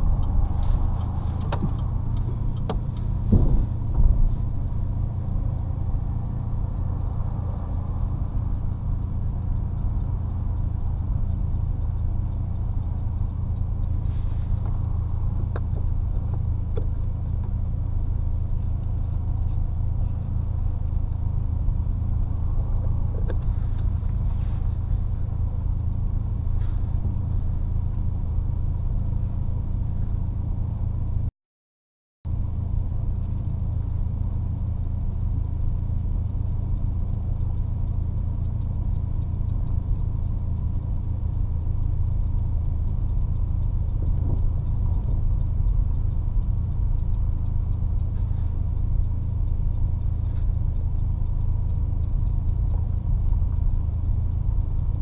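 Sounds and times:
car engine and exhaust drone: 0.0 - 31.3, 32.2 - 55.0
faint clicks: 33.1 - 55.0.

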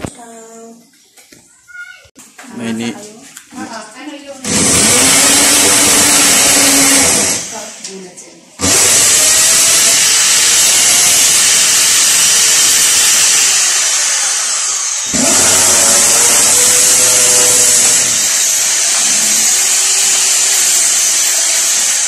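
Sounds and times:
electric drill boring into wall: 4.4 - 7.7, 8.6 - 22.0.

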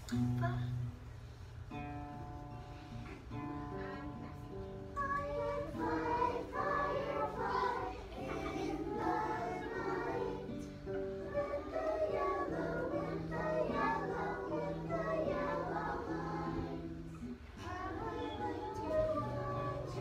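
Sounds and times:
plucked guitar: 0.0 - 20.0
children singing: 4.9 - 20.0.

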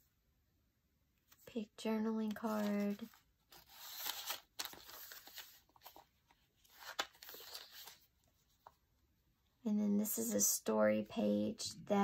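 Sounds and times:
paper pages rustling: 2.2 - 8.8.

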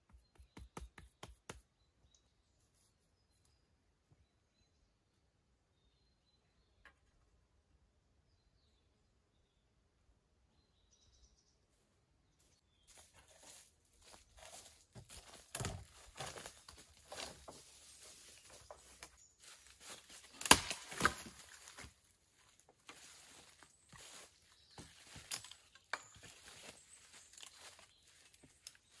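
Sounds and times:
dead branch being handled: 12.9 - 29.0
footsteps crunching through dry leaves: 12.9 - 29.0
dry wood cracking: 14.5 - 17.8, 19.8 - 21.9.

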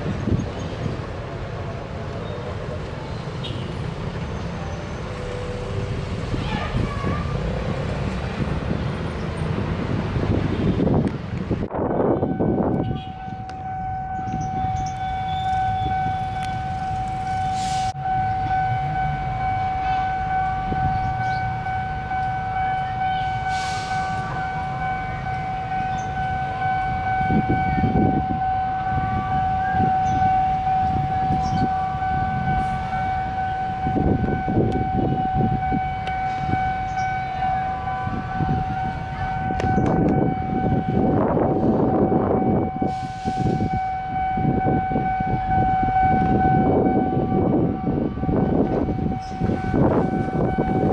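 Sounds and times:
diesel locomotive running: 0.0 - 50.9
rail noise: 0.0 - 50.9
level crossing alarm tone: 11.9 - 50.9.

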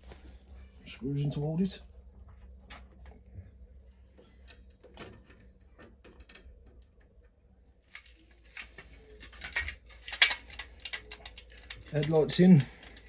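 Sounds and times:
rustling and scraping: 0.0 - 0.8
faint handling clicks and taps: 10.6 - 13.0.

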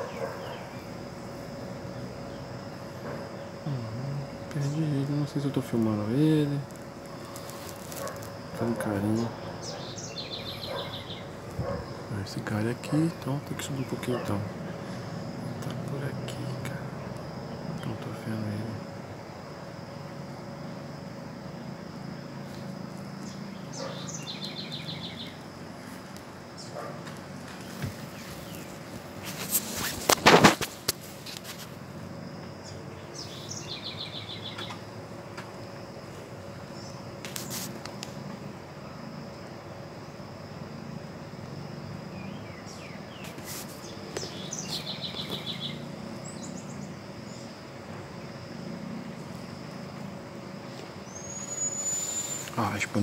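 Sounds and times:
marmosets chirping: 0.0 - 20.0, 22.4 - 30.5, 32.6 - 35.0, 42.1 - 48.4, 50.6 - 53.0
insect drone: 0.0 - 53.0.

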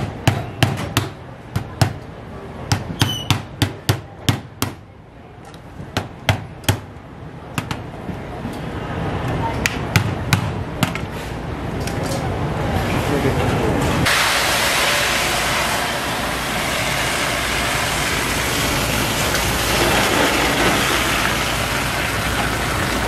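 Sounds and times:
steady hiss: 14.0 - 23.0.

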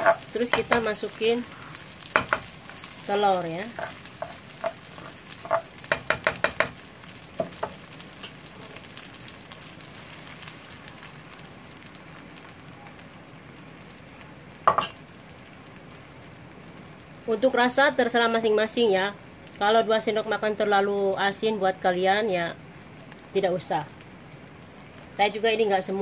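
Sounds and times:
utensil tapping and scraping pan: 0.0 - 1.0, 2.1 - 2.5, 3.7 - 6.8
egg sizzling in a frying pan: 0.0 - 25.8.

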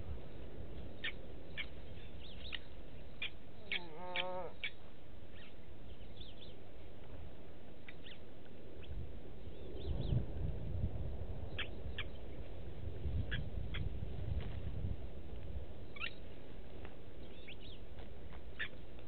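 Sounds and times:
lapwings metallic tink calls: 7.8 - 8.2, 15.9 - 16.2.

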